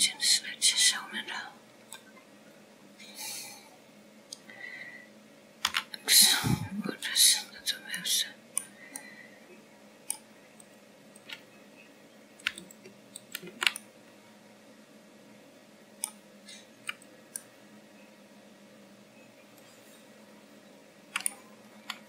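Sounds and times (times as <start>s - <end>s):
faint steady hum: 0.0s - 22.0s
computer mouse and keyboard clicks: 5.6s - 6.0s, 10.0s - 11.5s, 12.4s - 13.9s, 16.8s - 17.5s, 21.1s - 22.0s.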